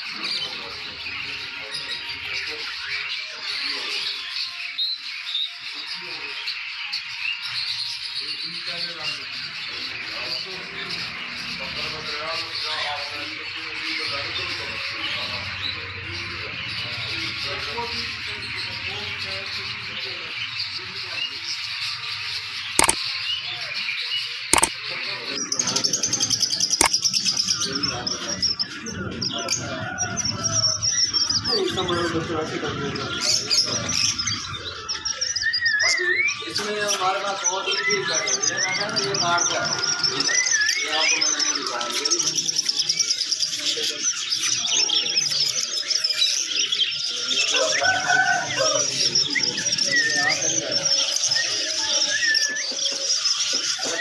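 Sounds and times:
caged birds chirping: 0.0 - 54.0
sharp clicks: 22.8 - 23.0.

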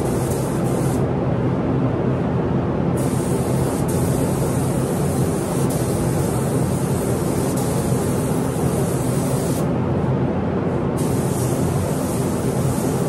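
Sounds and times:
paint spray gun hissing: 0.0 - 1.0, 3.0 - 9.7, 11.0 - 13.0.

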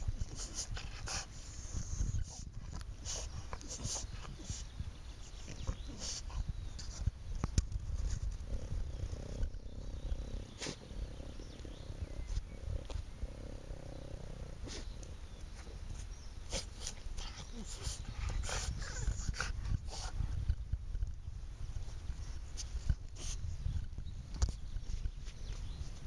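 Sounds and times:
dog snuffling and snorting: 0.0 - 7.1, 7.9 - 20.3, 22.2 - 23.5.

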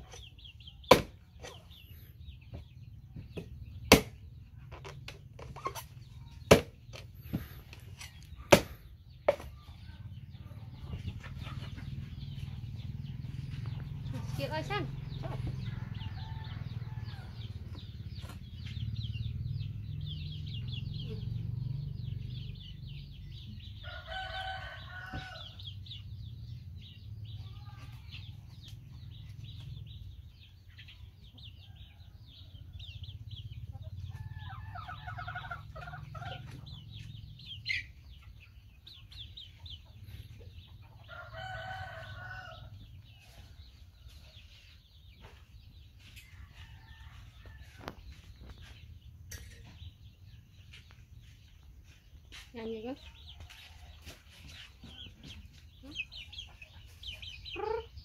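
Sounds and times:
cleaver chopping coconut: 0.9 - 1.2, 3.9 - 4.2, 6.5 - 6.7, 8.5 - 8.7
rooster crowing: 23.8 - 25.6, 41.1 - 42.7.

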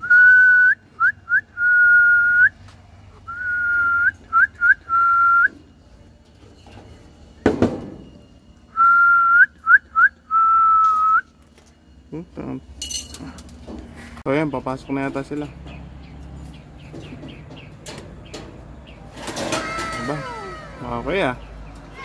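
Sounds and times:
person whistling: 0.0 - 2.6, 3.3 - 5.6, 8.7 - 11.3.

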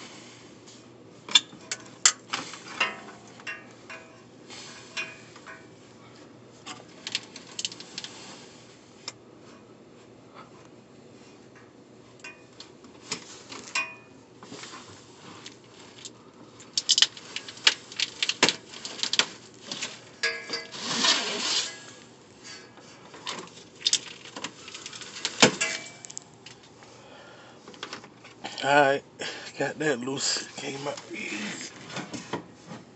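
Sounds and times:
metal scraping: 20.2 - 22.8.

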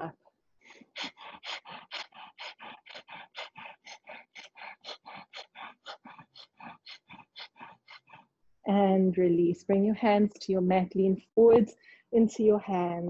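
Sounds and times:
rapid forceful breathing through nose: 0.6 - 8.3.

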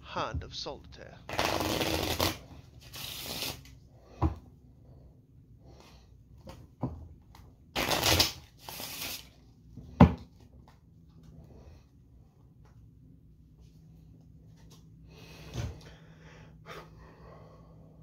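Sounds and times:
playing cards riffle-shuffled: 1.3 - 3.7, 7.8 - 9.4.

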